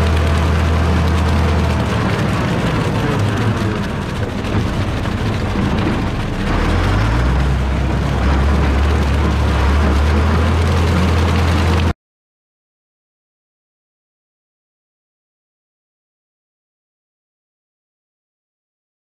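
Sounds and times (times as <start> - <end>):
tractor engine revving: 0.0 - 11.9.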